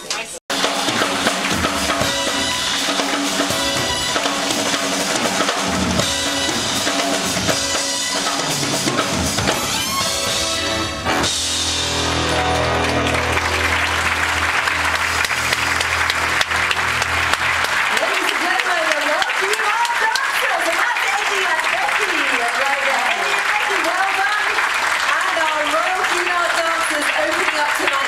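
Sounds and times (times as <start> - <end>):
band music with drum kit: 0.0 - 21.1
held low chord: 10.6 - 17.9.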